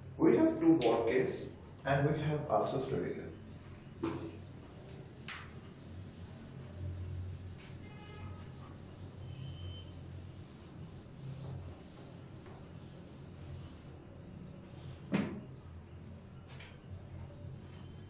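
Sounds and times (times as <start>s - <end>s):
eraser rubbing on whiteboard: 4.1s - 14.0s.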